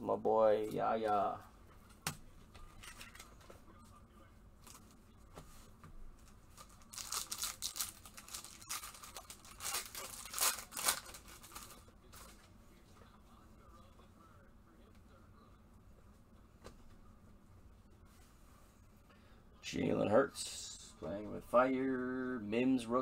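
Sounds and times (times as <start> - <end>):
foil pack tearing and crinkling: 6.6 - 11.8.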